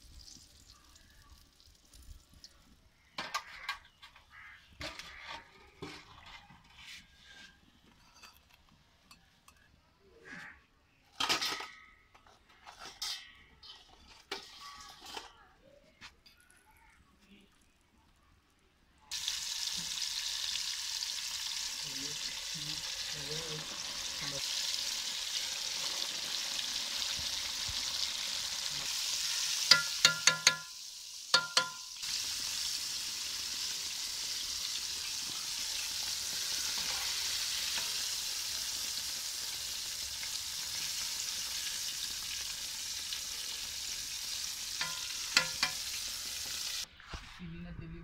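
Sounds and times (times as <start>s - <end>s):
chicken deep-frying in oil: 0.0s - 7.6s, 16.4s - 46.9s
metal utensils clinking on pot: 7.8s - 9.7s, 11.1s - 15.4s, 29.6s - 32.0s, 44.8s - 46.0s.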